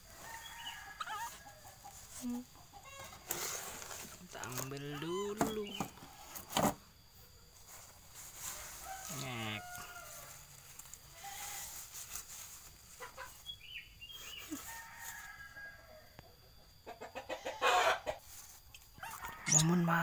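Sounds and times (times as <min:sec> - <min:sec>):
rooster crowing: 0:00.0 - 0:01.9, 0:08.4 - 0:11.7, 0:14.5 - 0:16.2, 0:17.3 - 0:18.2, 0:19.0 - 0:20.0
cardboard box and plastic rustling: 0:03.0 - 0:06.8
faint high chirps: 0:18.7 - 0:20.0.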